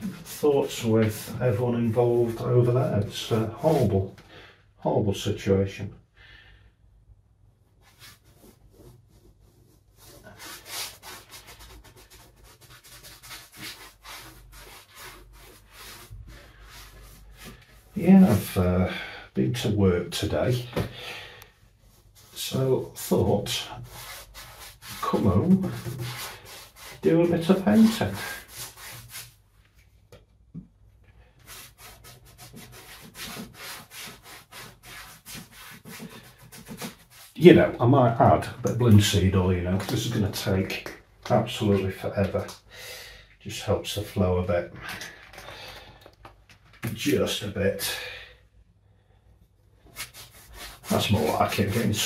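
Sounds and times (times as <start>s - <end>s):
paintbrush scrubbing on canvas: 0.0s - 4.0s, 7.8s - 18.6s, 21.6s - 29.4s, 31.3s - 37.8s, 49.8s - 52.0s.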